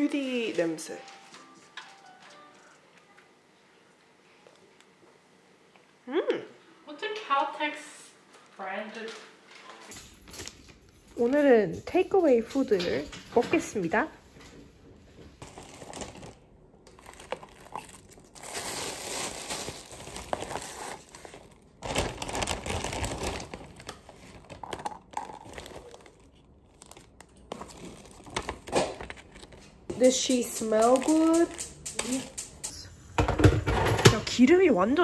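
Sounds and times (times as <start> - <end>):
paper and plastic bags rustling: 0.0 - 2.9, 15.4 - 32.2.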